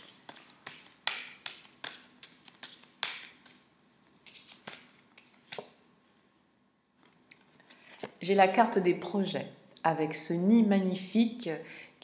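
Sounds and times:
cards being shuffled: 0.0 - 5.7.

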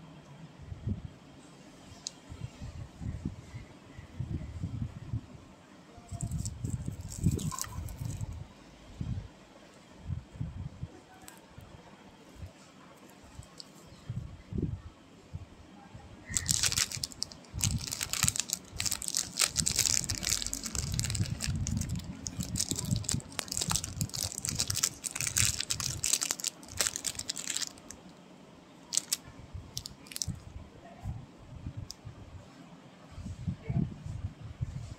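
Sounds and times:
plastic wrapping crinkling: 6.1 - 8.4, 16.3 - 28.1, 28.9 - 30.4.

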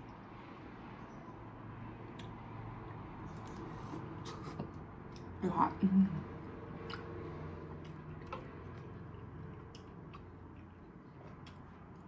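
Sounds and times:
chewing and wet mouth clicks: 2.1 - 2.4, 3.3 - 3.7, 6.4 - 7.2, 7.8 - 12.0.

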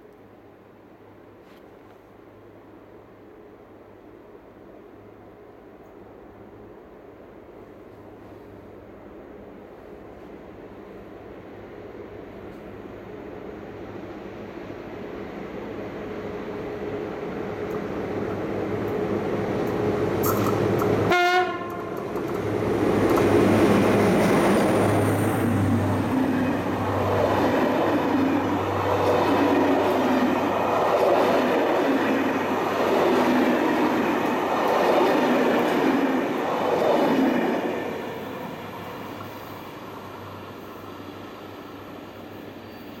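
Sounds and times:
diesel locomotive engine running: 15.6 - 43.0
train horn blast: 21.1 - 22.0.

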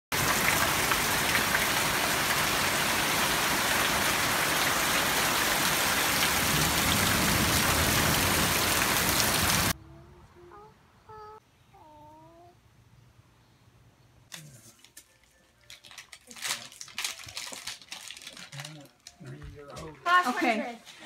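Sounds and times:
heavy rain pouring: 0.1 - 9.8.

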